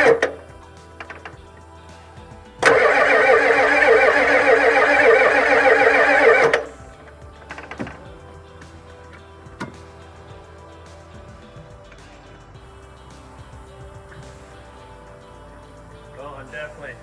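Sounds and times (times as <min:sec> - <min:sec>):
diesel engine cranking on starter: 0:00.0 - 0:01.6, 0:02.6 - 0:10.0.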